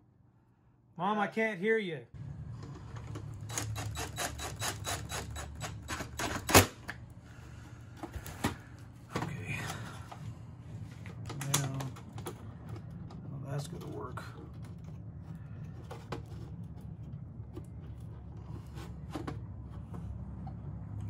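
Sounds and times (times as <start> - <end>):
steady low hum: 1.9 - 21.0
wires being handled clicks: 11.1 - 15.0.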